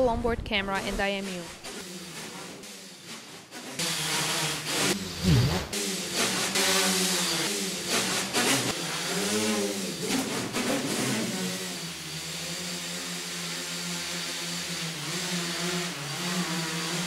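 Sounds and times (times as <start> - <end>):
drone propellers whirring: 3.8 - 10.6.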